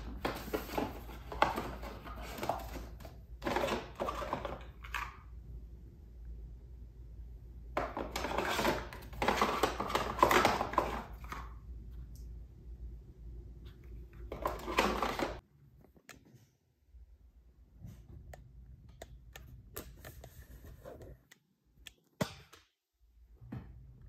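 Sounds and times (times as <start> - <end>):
plastic boxes rattling and scraping: 0.0 - 5.1, 7.8 - 11.4, 14.3 - 15.4
low steady hum: 4.8 - 7.8, 11.2 - 14.4.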